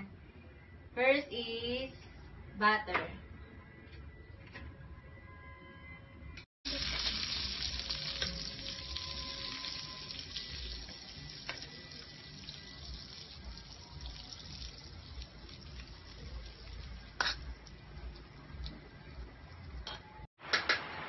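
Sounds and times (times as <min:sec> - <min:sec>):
butter sizzling in a pan: 0:06.7 - 0:17.3.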